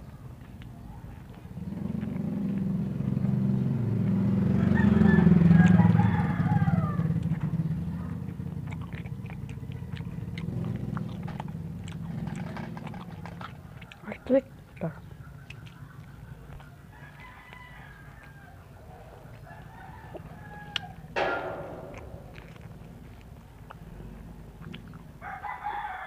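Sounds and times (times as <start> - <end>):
vehicle engine passing by: 1.4 - 13.2
teeth biting corn kernels: 5.5 - 7.5, 8.1 - 18.4, 22.4 - 25.2.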